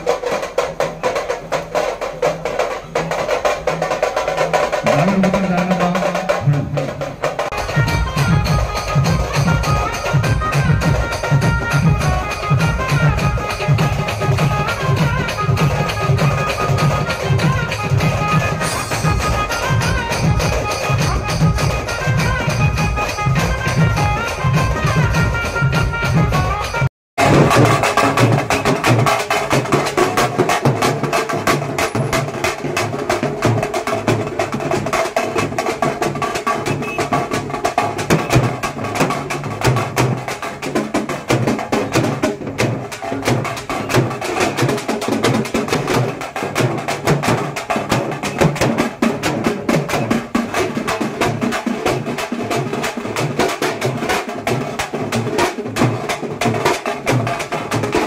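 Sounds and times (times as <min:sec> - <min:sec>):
loud fast drumming: 0:00.0 - 0:58.0.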